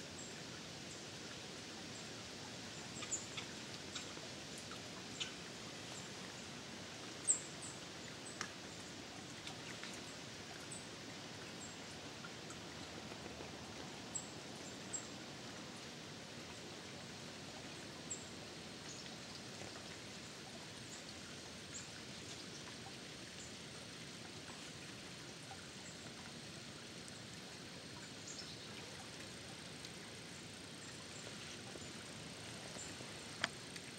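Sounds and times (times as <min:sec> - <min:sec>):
steady hiss: 0:00.0 - 0:33.9
faint small ticks: 0:02.9 - 0:06.2, 0:07.1 - 0:10.8, 0:18.8 - 0:23.6, 0:27.0 - 0:33.9.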